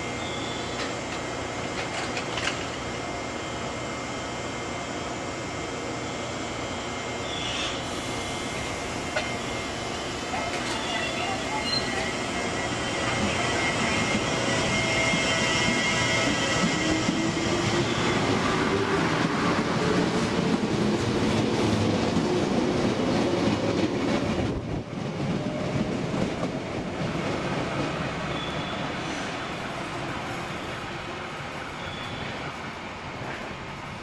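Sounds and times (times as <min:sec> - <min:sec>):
wheels rumbling on rails: 0:00.0 - 0:03.1, 0:08.5 - 0:34.0
electric train motor whine: 0:00.0 - 0:20.3.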